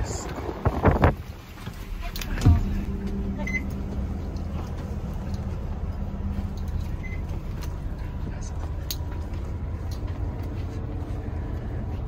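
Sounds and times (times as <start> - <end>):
bus engine idling: 1.3 - 12.0
faint short beeps: 3.4 - 3.7, 7.0 - 7.3.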